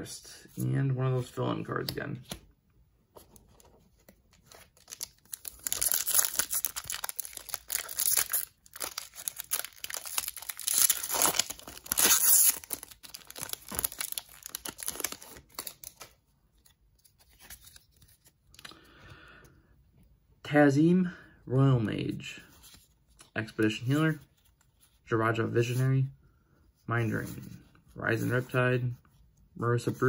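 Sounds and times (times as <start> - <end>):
foil wrapper tearing and crinkling: 4.8 - 16.1.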